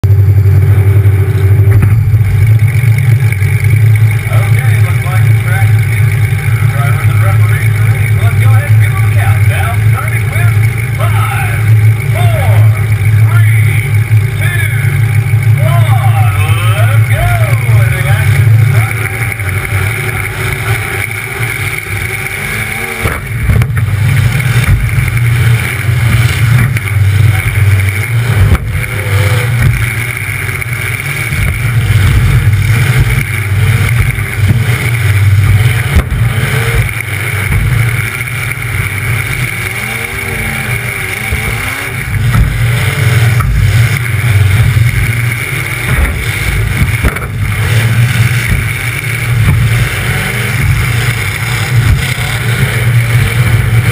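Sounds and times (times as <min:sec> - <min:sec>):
car engine revving loud: 0:00.0 - 0:53.9
sharp knocks: 0:42.3 - 0:42.7, 0:45.8 - 0:47.5.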